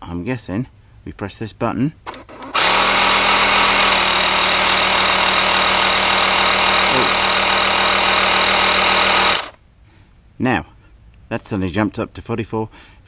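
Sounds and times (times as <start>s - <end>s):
electric air compressor humming: 2.1s - 9.6s.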